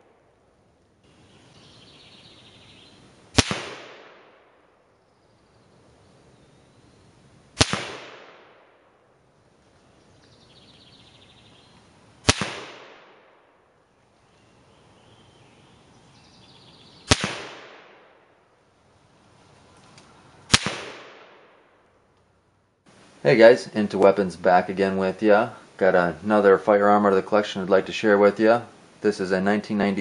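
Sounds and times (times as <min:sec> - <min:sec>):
rifle shots with echo: 0:03.3 - 0:04.8, 0:07.6 - 0:09.0, 0:12.2 - 0:13.7, 0:17.1 - 0:18.3, 0:20.5 - 0:21.8.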